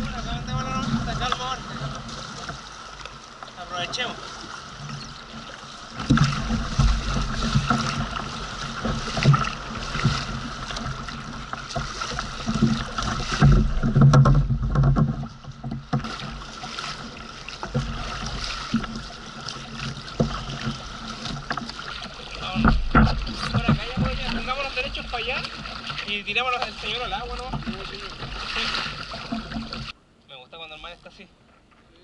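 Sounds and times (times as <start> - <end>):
paddle blades splashing: 0.0 - 32.0
water sloshing against hull: 0.0 - 32.0.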